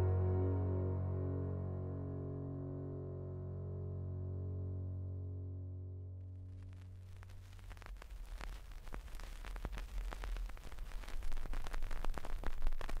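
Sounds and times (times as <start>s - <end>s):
crackling and popping surface noise: 6.2s - 13.0s.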